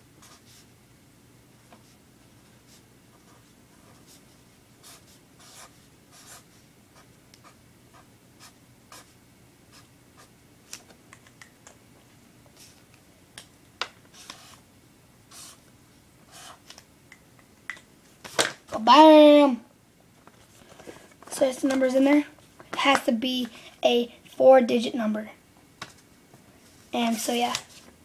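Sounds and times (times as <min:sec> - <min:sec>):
marker pen scratching on paper: 0:00.2 - 0:00.7, 0:02.7 - 0:10.3, 0:14.1 - 0:14.6, 0:15.3 - 0:15.6, 0:16.3 - 0:16.7.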